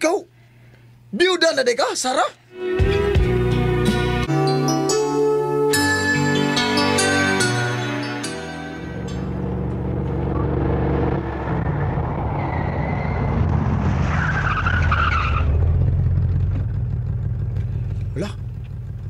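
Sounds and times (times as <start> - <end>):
car engine running: 8.9 - 12.4, 15.4 - 19.0
tyre and brake screech: 11.3 - 13.5, 14.1 - 15.8.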